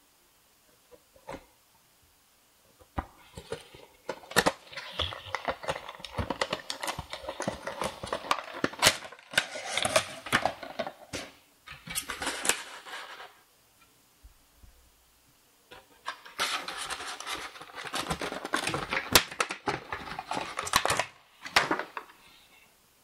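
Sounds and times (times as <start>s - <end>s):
plastic and cardboard crinkling: 3.0s - 13.4s, 15.7s - 22.2s.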